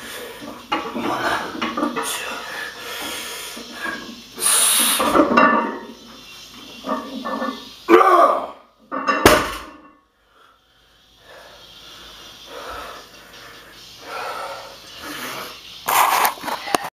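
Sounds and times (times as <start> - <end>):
barbell plates hitting floor: 5.0 - 5.9, 8.9 - 10.0
man grunting: 7.9 - 8.6
heavy breathing: 10.2 - 15.6.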